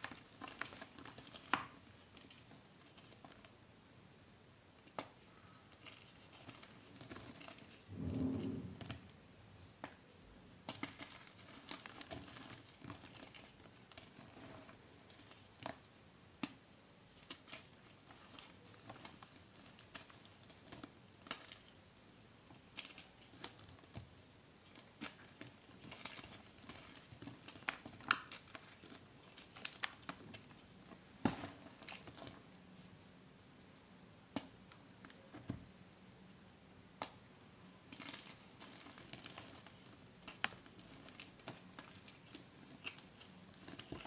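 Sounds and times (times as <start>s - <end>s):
chalk crumbling between fingers: 37.0s - 44.0s.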